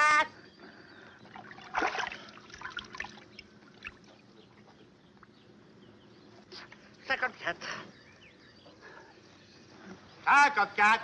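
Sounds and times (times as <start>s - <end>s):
water dripping: 1.5s - 4.2s.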